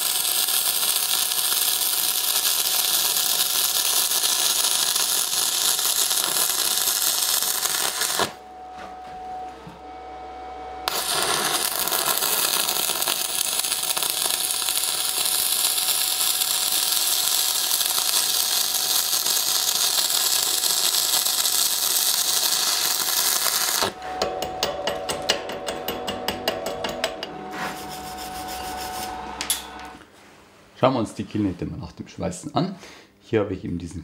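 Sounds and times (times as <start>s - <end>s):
welding arc crackling: 0.0s - 8.4s, 10.8s - 24.0s.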